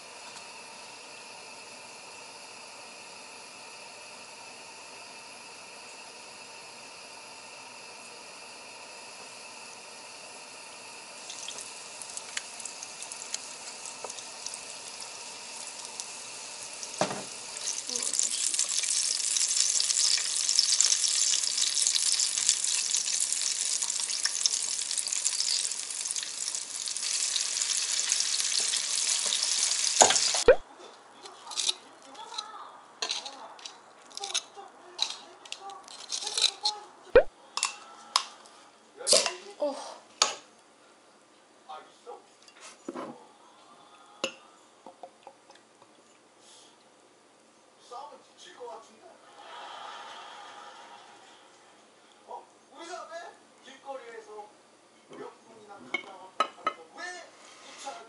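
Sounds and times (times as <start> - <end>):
chicken deep-frying in oil: 11.0 - 30.6.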